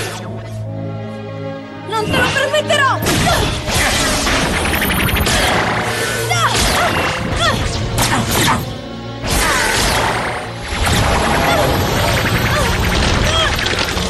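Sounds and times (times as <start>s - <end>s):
dramatic action music: 0.0s - 14.0s
energy blasts zapping and crashing: 9.3s - 14.0s.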